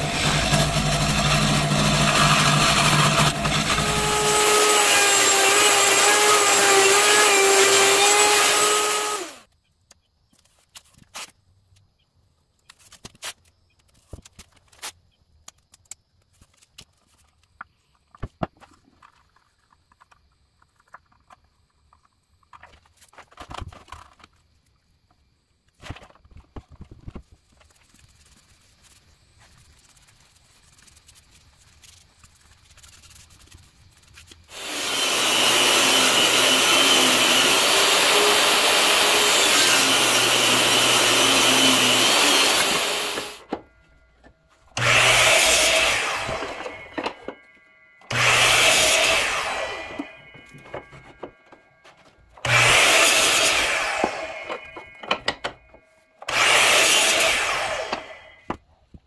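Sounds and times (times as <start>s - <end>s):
scroll saw cutting wood: 0.0s - 9.5s, 33.5s - 44.0s, 44.7s - 58.6s.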